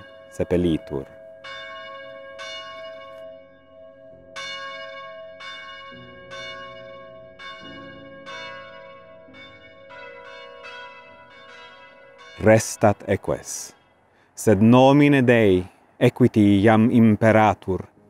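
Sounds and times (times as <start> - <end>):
church bells chiming: 0.0 - 13.8.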